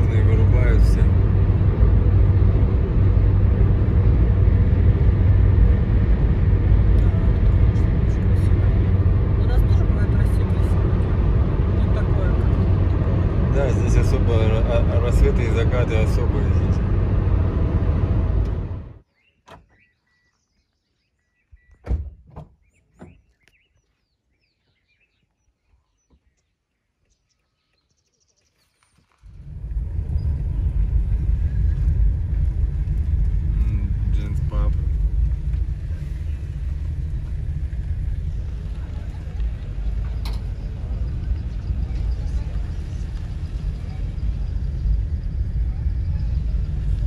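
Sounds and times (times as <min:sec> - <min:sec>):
car engine: 0:00.0 - 0:19.0, 0:29.0 - 0:47.0
tyre noise on road: 0:00.0 - 0:19.0, 0:28.4 - 0:47.0
car driving on asphalt road: 0:00.0 - 0:25.2, 0:27.0 - 0:47.0
faint bird chirps: 0:19.0 - 0:21.8.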